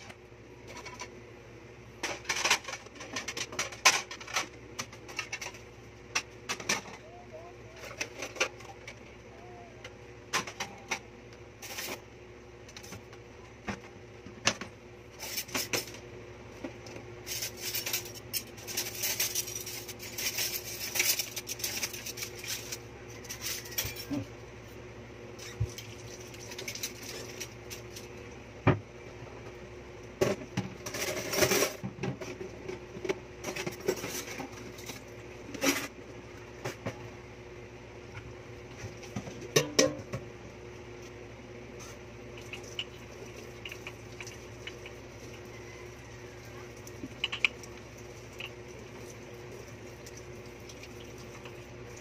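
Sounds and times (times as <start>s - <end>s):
faint steady hum: 0.0s - 52.0s
metal pots clattering in a sink: 39.2s - 40.2s.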